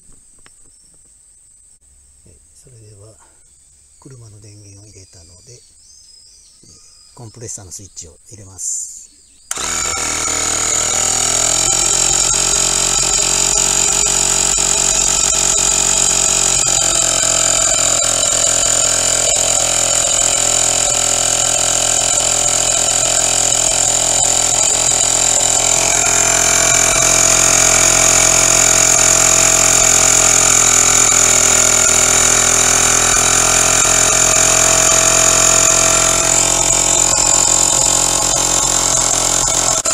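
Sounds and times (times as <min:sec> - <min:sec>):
small air compressor running: 0:09.5 - 0:39.9.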